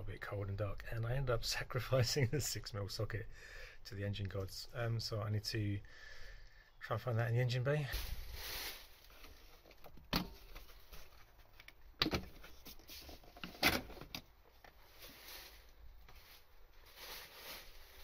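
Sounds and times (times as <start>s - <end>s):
faint rustling of handling: 7.8s - 18.0s.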